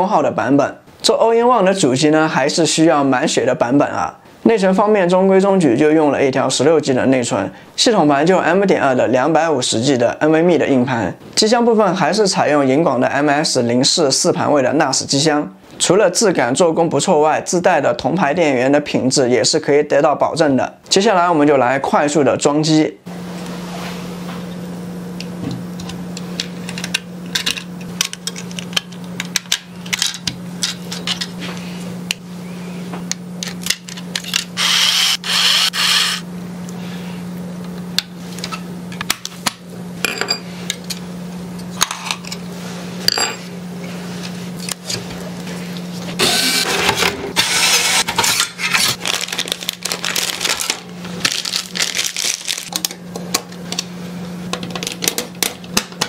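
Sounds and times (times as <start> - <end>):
steady low hum: 23.0 - 56.0.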